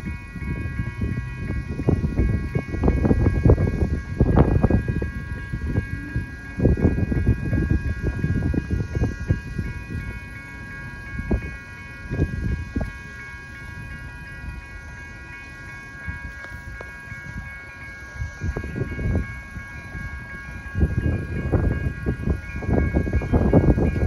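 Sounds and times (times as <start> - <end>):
crossing warning bells ringing: 0.0 - 24.0.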